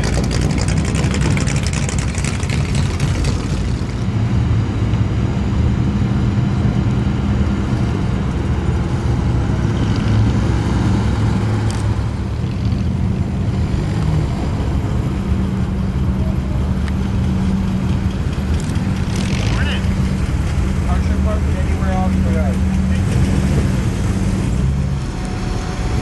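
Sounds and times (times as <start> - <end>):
car engines idling: 0.0 - 26.0.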